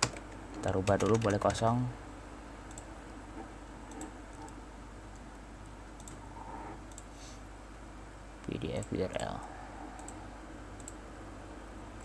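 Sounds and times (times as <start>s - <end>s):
low steady hum: 0.0s - 12.0s
faint computer mouse clicks: 3.9s - 6.2s, 6.9s - 7.2s, 10.0s - 10.2s.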